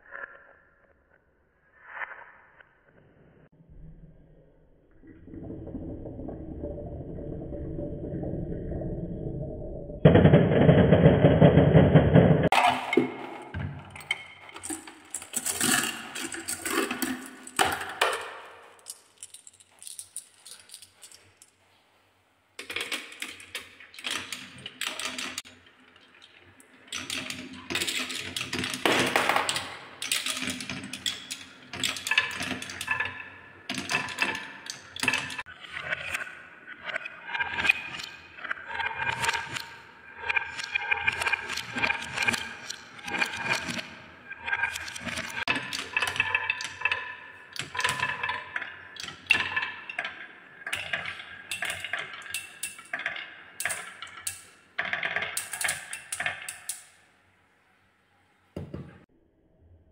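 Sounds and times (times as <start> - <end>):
balls rattling down wooden marble run: 10.0 - 21.5, 22.6 - 57.0.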